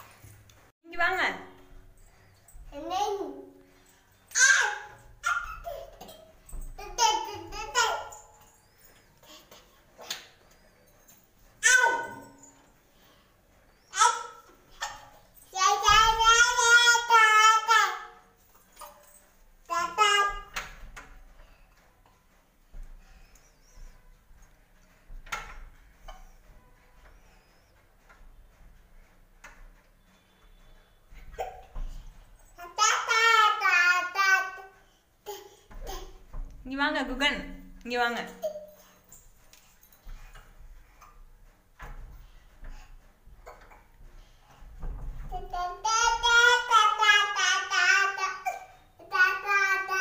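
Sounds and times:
toddler sing-song vocalizing: 45.3 - 50.0.

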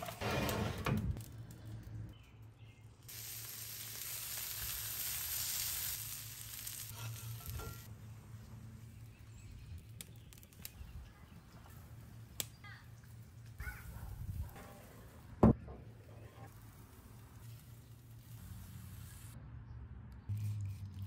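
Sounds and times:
steak sizzling on griddle: 3.1 - 7.9.

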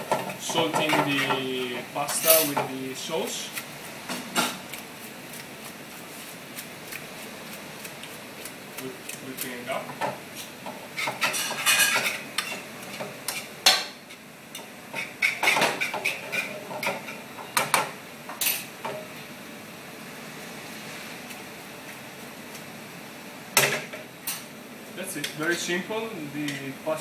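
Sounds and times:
tongs clattering in metal pan: 0.1 - 2.7, 10.4 - 13.9.

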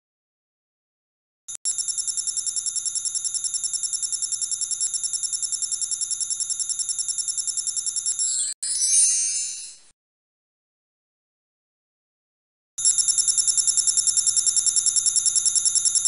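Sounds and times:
bell ringing trill: 8.1 - 9.8
bright jingling chime: 8.2 - 9.8.

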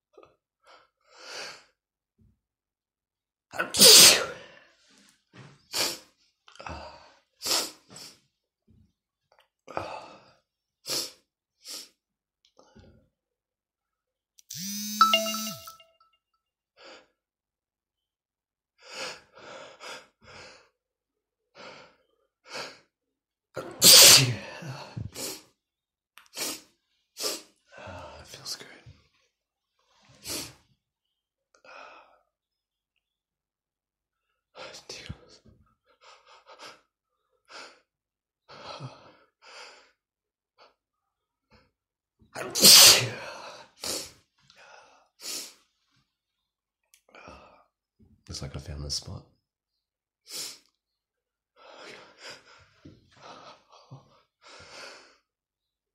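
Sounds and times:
man sneezing: 3.6 - 4.5, 23.6 - 25.4, 42.4 - 43.3.

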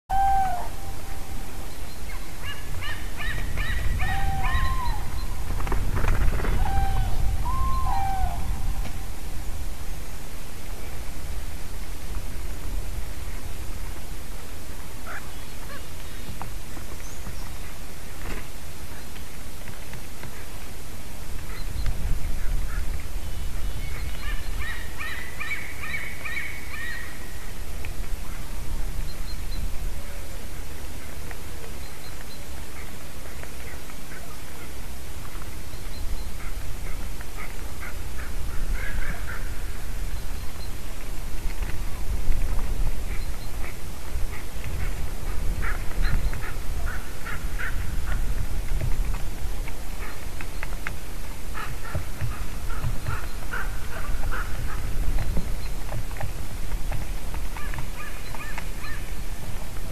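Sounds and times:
cranes honking calls: 0.1 - 1.5, 2.1 - 5.4, 6.1 - 9.2, 36.4 - 39.9, 51.5 - 55.0.

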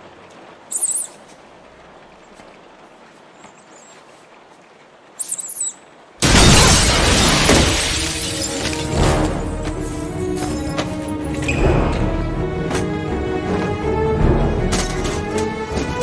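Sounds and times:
high-pitched squealing chirps: 0.7 - 1.2
loud shattering crash: 6.2 - 9.4
dramatic film score: 8.0 - 16.0.

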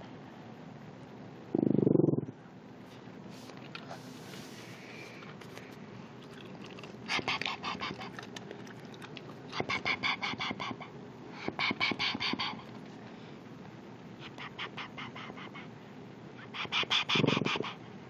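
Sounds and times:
puppy growling: 6.2 - 10.9.

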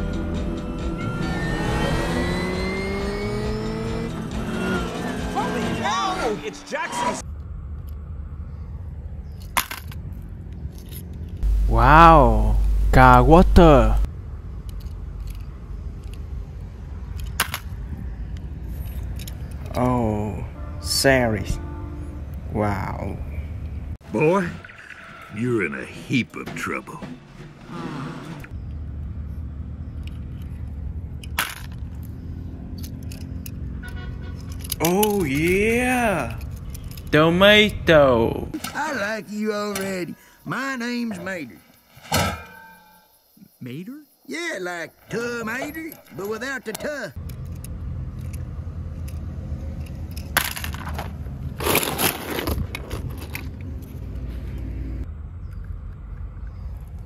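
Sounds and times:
low rumble: 7.2 - 17.0
low outdoor rumble: 7.2 - 24.0, 28.3 - 38.6
toy cars clattering in basket: 31.2 - 32.1, 34.3 - 35.6, 49.8 - 53.9.

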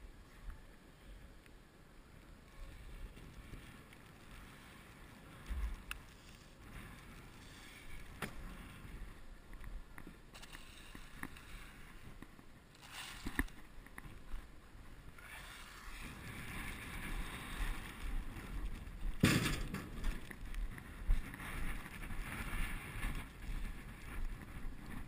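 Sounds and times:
wind rumbling on microphone: 0.0 - 25.0.

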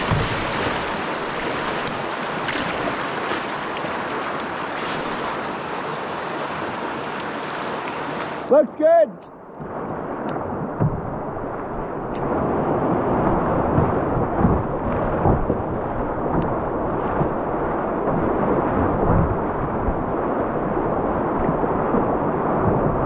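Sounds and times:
low thumps: 0.0 - 1.1, 10.4 - 20.2
river rapids rushing: 0.0 - 9.0.

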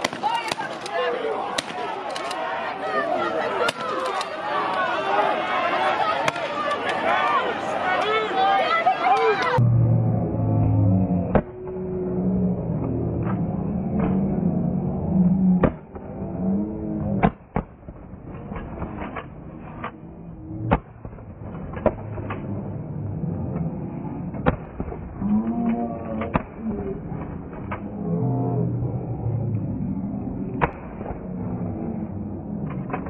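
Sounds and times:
people yelling: 0.0 - 9.6.

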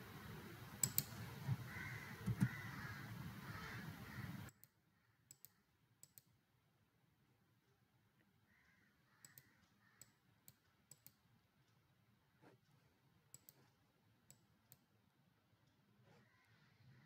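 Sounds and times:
computer mouse clicks: 0.8 - 2.7, 4.5 - 6.3, 9.2 - 11.2, 13.3 - 14.9.

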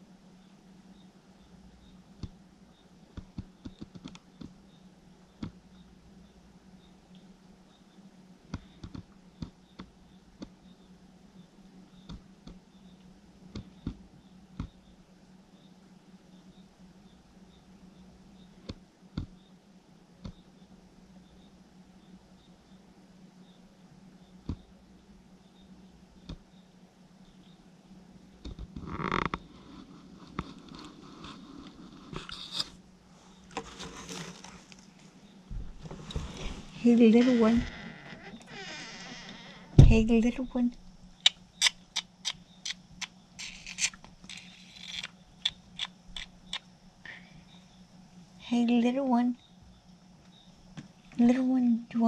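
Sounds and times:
faint steady hum: 0.0 - 52.0
animal feeding from plastic dish: 43.4 - 46.6.

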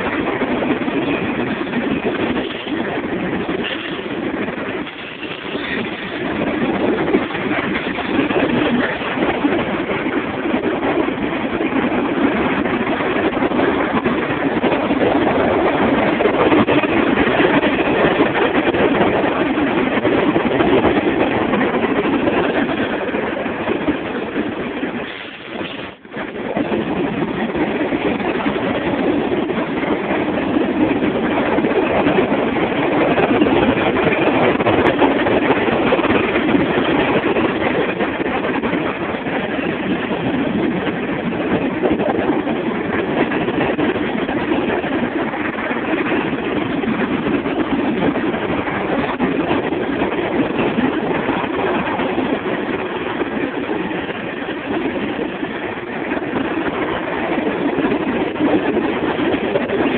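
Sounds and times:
freight train rolling past: 0.0 - 59.9.

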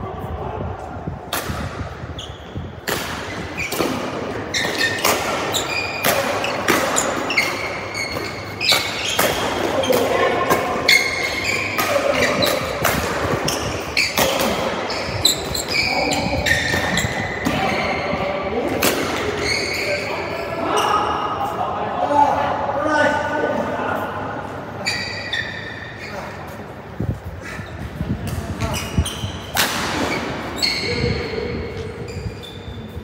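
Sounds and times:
shoes squeaking on court: 2.0 - 18.3, 18.9 - 20.9, 24.8 - 26.7, 27.4 - 33.0
rackets hitting shuttlecock: 2.8 - 14.8, 29.4 - 30.4.

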